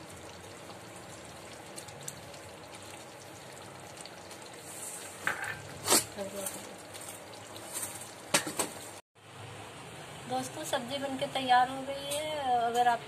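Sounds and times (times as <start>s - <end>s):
curry simmering and bubbling: 0.0s - 9.0s.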